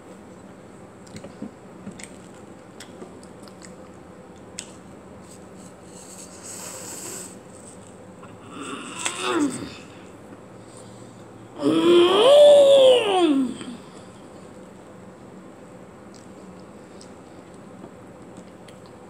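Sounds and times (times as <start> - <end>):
breath through the nose: 5.9 - 7.4.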